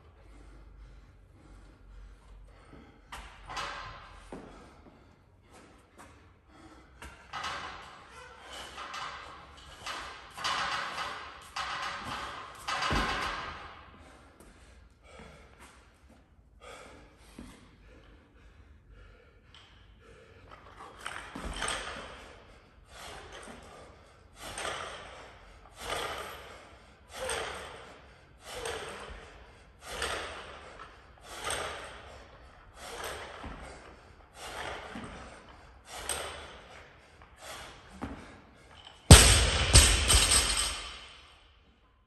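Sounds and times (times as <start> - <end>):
sharp forceful breaths: 0.1 - 41.8
weight plates rattling: 8.4 - 13.6
barbell crashing on floor: 39.1 - 41.2.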